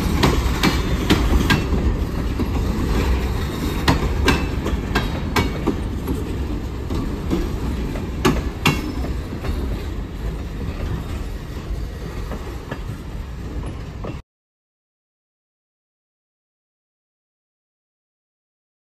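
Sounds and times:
train wheel clicks: 0:00.0 - 0:11.2
freight train rumbling: 0:00.0 - 0:14.2.

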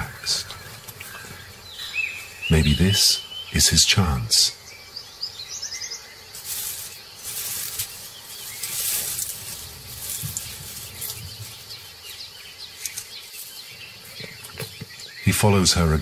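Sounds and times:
dry grass rustling: 0:00.0 - 0:03.1, 0:05.9 - 0:15.1.

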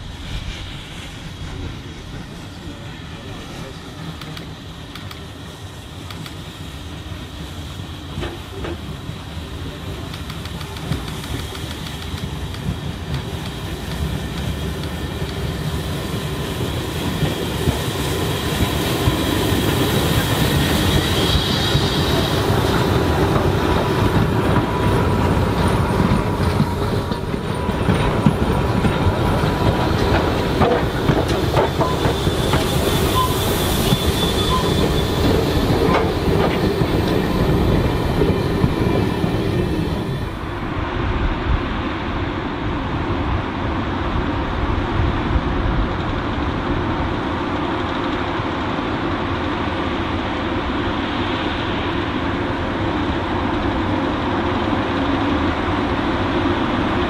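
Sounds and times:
train wheels squealing: 0:00.0 - 0:40.4
train wheels clattering on rails: 0:03.9 - 0:40.5.

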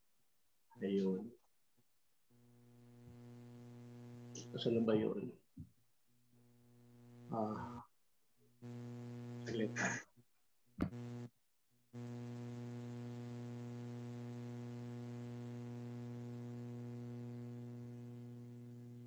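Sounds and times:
electrical hum: 0:02.3 - 0:05.4, 0:06.3 - 0:08.0, 0:08.6 - 0:10.1, 0:10.8 - 0:11.3, 0:12.0 - 0:19.0.

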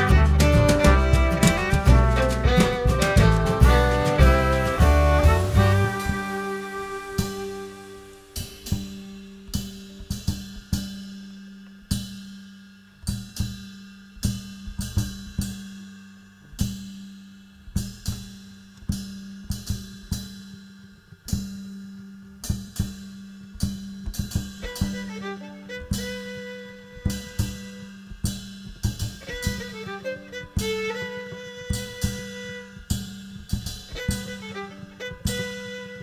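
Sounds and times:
steady low held note: 0:00.0 - 0:11.7
cymbal and drum strikes: 0:00.0 - 0:36.0.

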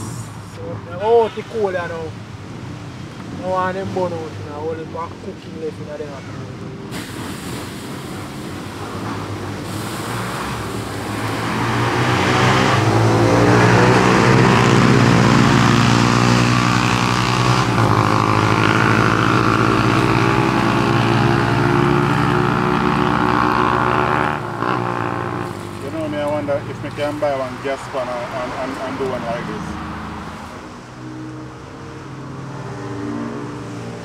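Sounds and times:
water hissing on hot charcoal: 0:06.9 - 0:11.3.

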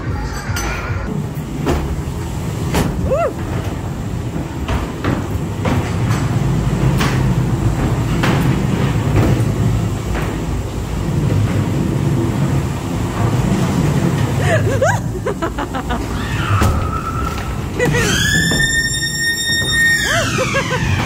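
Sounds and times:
ride car rumbling on track: 0:00.0 - 0:21.0
clattering knocks: 0:01.5 - 0:14.4.

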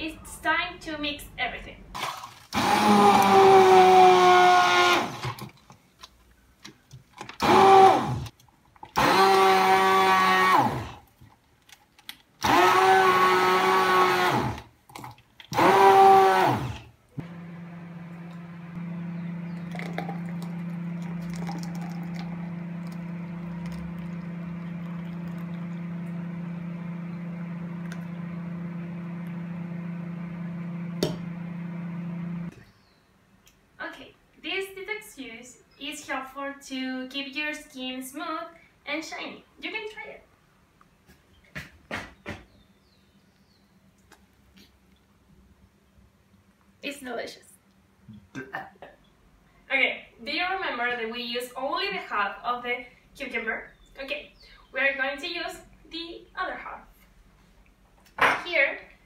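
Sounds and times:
immersion blender motor whine: 0:02.6 - 0:05.4, 0:07.4 - 0:08.3, 0:09.0 - 0:11.0, 0:12.4 - 0:14.6, 0:15.5 - 0:32.5.

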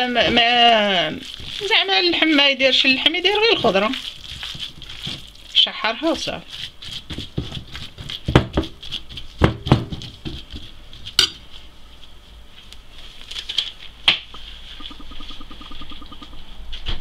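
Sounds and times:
spoon stirring meat filling: 0:00.0 - 0:11.6
spoon clinking on ceramic plate: 0:11.2 - 0:11.4.

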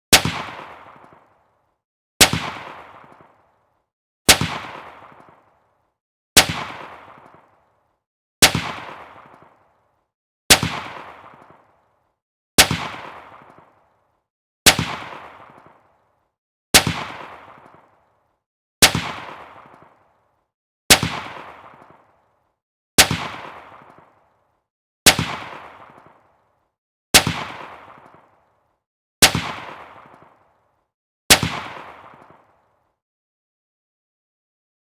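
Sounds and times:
gunshot with recoil: 0:00.1 - 0:01.2, 0:02.2 - 0:03.3, 0:04.3 - 0:05.4, 0:06.4 - 0:07.5, 0:08.4 - 0:09.6, 0:10.5 - 0:11.6, 0:12.6 - 0:13.7, 0:14.7 - 0:15.8, 0:16.8 - 0:17.9, 0:18.8 - 0:20.0, 0:20.9 - 0:22.0, 0:23.0 - 0:24.1, 0:25.1 - 0:26.2, 0:27.2 - 0:28.3, 0:29.2 - 0:30.4, 0:31.3 - 0:32.4.

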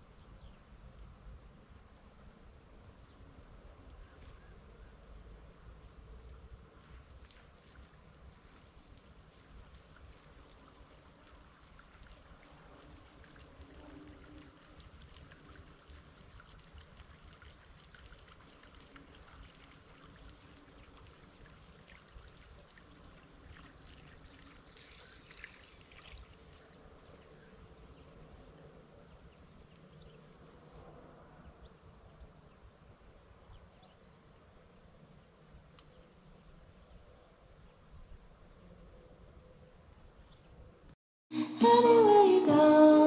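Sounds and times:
soft ticks: 0:35.7 - 0:35.9.

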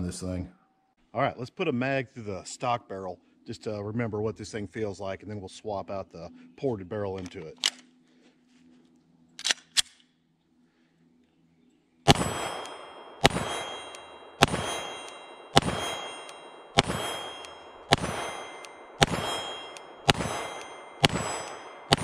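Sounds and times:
pistol shots: 0:12.1 - 0:22.0
steel target clang: 0:12.1 - 0:22.0.

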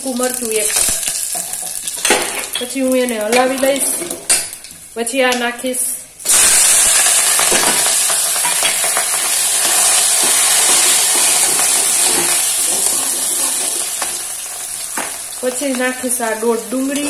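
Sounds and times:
hot oil sizzling loudly: 0:00.0 - 0:04.9, 0:06.2 - 0:17.0
spoon stirring and knocking: 0:00.8 - 0:02.7.

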